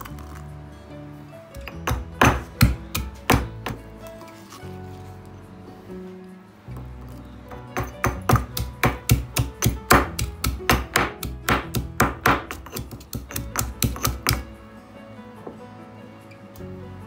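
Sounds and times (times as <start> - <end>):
background music: 0.0 - 17.0
stone pestle pounding in mortar: 1.7 - 3.8, 7.5 - 14.5.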